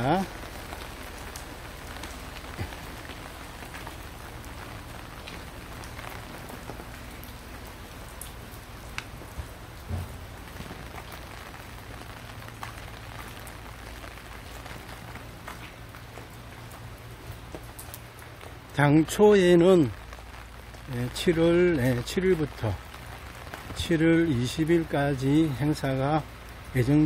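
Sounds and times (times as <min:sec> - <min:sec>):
steady rain: 0:00.0 - 0:27.0
drops ticking: 0:00.2 - 0:18.7.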